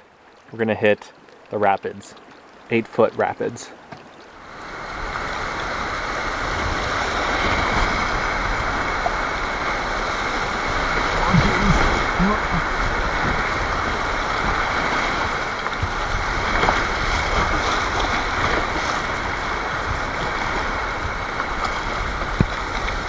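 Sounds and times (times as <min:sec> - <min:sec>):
river water rushing: 0:00.0 - 0:23.0.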